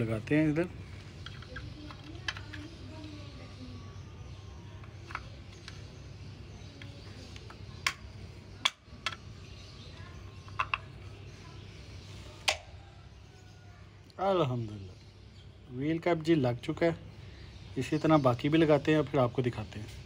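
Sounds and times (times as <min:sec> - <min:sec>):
plastic wheel cap clicks: 0:04.8 - 0:05.9, 0:06.8 - 0:09.2, 0:10.4 - 0:10.9.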